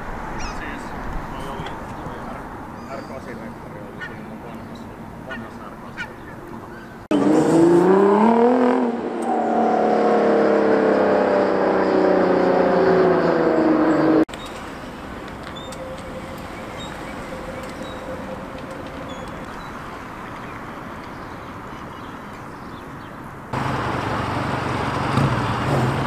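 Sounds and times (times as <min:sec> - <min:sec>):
street ambience: 0:00.0 - 0:26.0
car engine accelerating: 0:07.0 - 0:20.6, 0:23.5 - 0:26.0.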